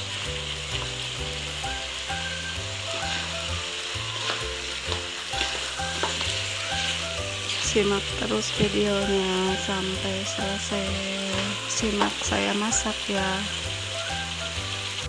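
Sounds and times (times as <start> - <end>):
chicken wings sizzling in oil: 0.0 - 15.0
spatula scraping a wok: 0.7 - 9.1.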